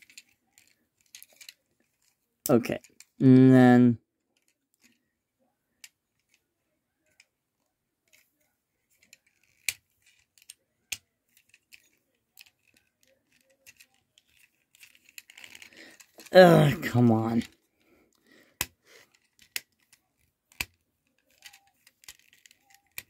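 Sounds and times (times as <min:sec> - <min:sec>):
plastic parts clicking: 0:00.0 - 0:02.2, 0:08.1 - 0:16.4, 0:17.3 - 0:23.0.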